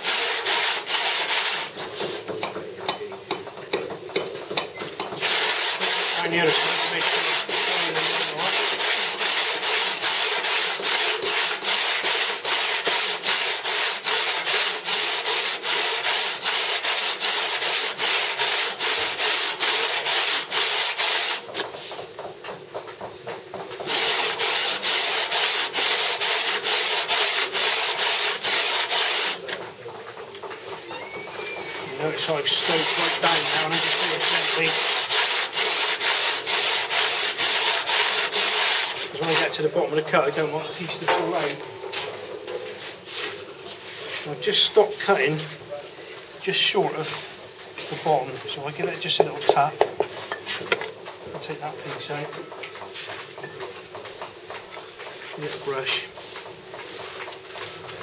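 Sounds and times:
hand saw cutting stone: 32.2 - 39.6.

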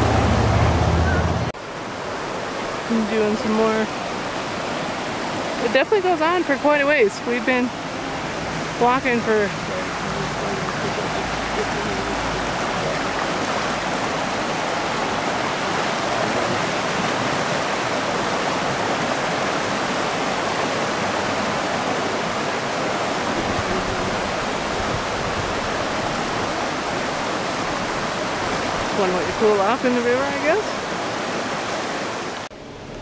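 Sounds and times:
river rushing over rocks: 0.0 - 32.9.

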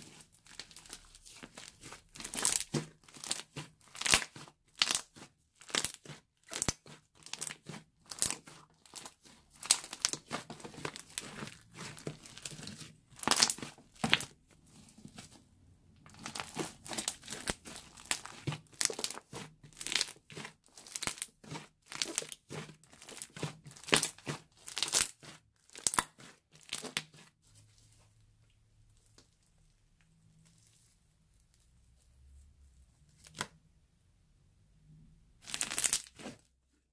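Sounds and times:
sticky crackly slime bursts: 0.5 - 14.3, 16.1 - 27.2, 35.4 - 36.4
slime squeezed by hand: 0.6 - 14.3, 16.1 - 27.2, 35.4 - 36.4.

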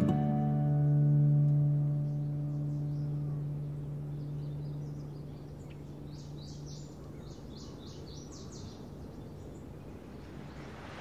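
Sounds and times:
birds chirping: 0.0 - 11.0
steady rushing noise: 9.4 - 11.0.

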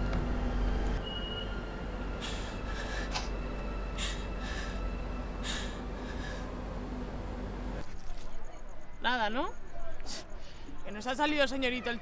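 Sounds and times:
steady low hum: 1.7 - 7.9
woman sniffling while crying: 2.2 - 3.4, 4.0 - 6.5.

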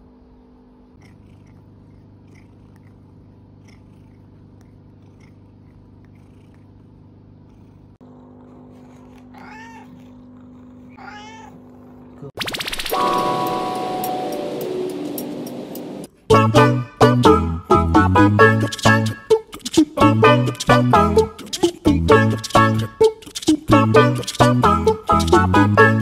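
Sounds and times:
low steady hum: 0.0 - 12.4
cat meowing: 8.7 - 10.2, 10.8 - 11.7.

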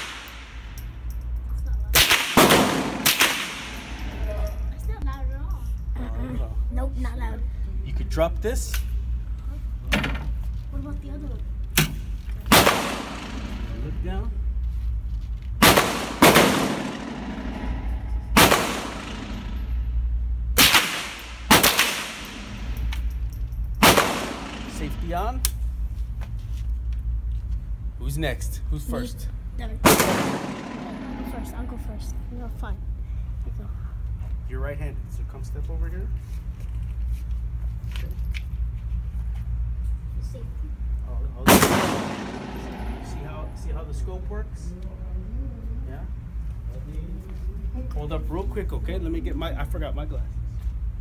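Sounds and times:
rifle shots with echo: 2.0 - 4.0, 12.5 - 13.7, 15.6 - 17.6, 18.4 - 19.6, 20.6 - 22.7, 23.8 - 25.0, 29.8 - 31.3, 41.4 - 43.0.

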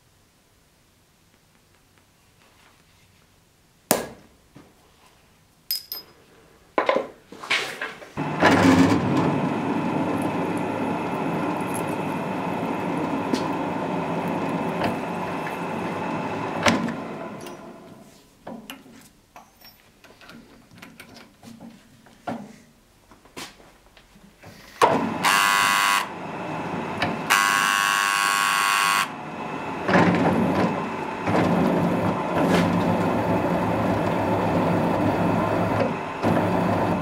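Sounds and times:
drill press drilling steel: 8.2 - 18.0, 24.8 - 37.0
vise clatter: 8.2 - 18.0, 29.6 - 37.0.

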